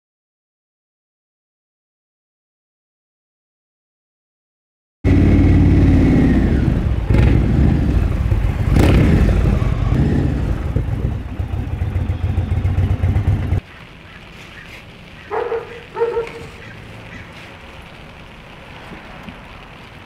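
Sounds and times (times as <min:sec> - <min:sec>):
motorcycle engine revving: 0:05.1 - 0:13.6.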